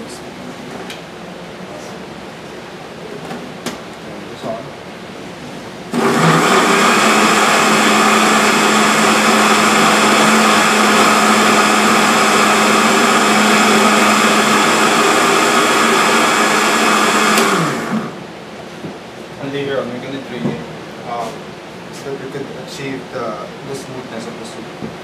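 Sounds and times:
blender motor whining: 5.9s - 18.2s.

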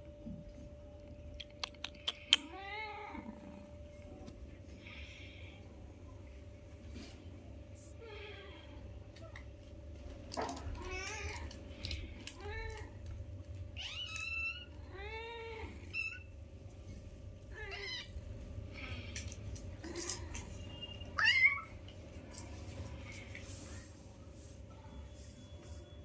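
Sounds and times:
steady low hum: 0.0s - 26.0s
kittens mewing: 17.4s - 21.8s.

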